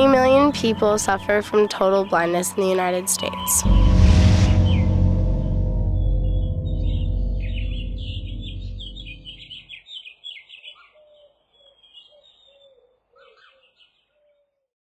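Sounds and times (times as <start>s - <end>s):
birds chirping: 0.0s - 3.9s, 4.5s - 14.6s
low ringing tone: 0.0s - 9.6s.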